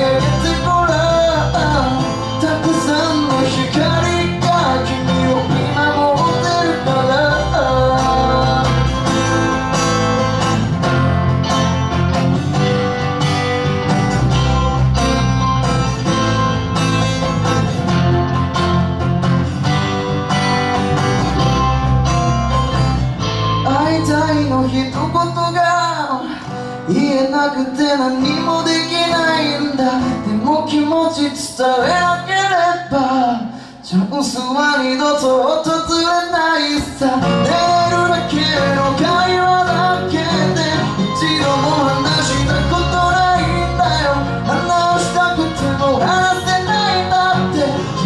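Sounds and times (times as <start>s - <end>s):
man singing: 0.0s - 9.8s, 23.5s - 48.0s
pop-rock band playing: 0.0s - 48.0s.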